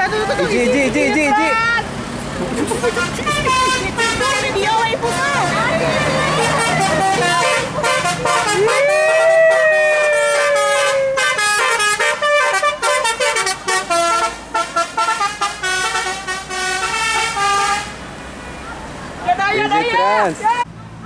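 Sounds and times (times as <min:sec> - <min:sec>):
bus multi-tone horn melody: 0:02.7 - 0:18.0.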